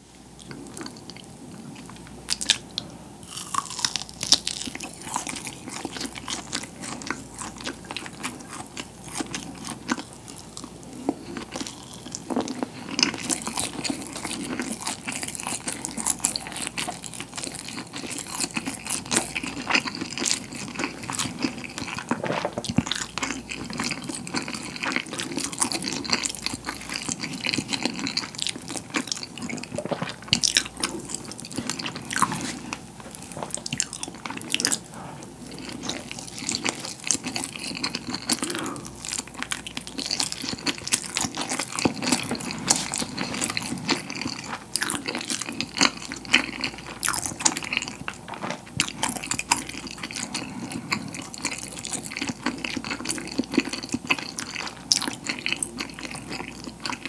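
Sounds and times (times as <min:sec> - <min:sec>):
close chewing with mouth clicks: 0:00.4 - 0:57.0.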